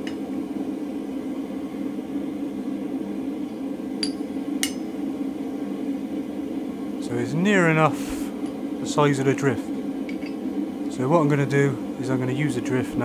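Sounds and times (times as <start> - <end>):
gas forge burner hum: 0.0 - 13.0.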